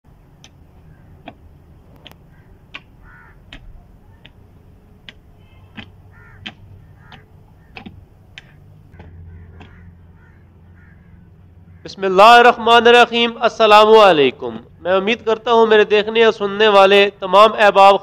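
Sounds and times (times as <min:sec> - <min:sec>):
birds calling: 0:00.1 - 0:18.0
hoe chopping into soil: 0:02.0 - 0:04.4.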